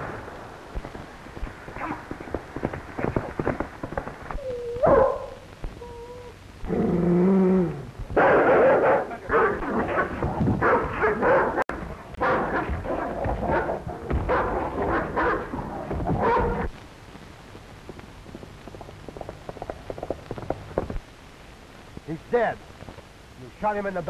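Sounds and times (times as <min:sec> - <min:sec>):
dog barking and snarling: 0:04.8 - 0:05.4, 0:06.7 - 0:16.7.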